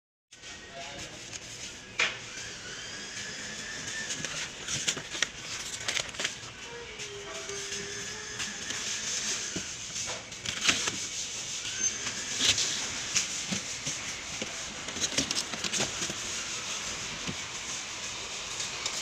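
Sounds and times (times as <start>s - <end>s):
plastic wrapping crinkling: 3.9s - 17.3s.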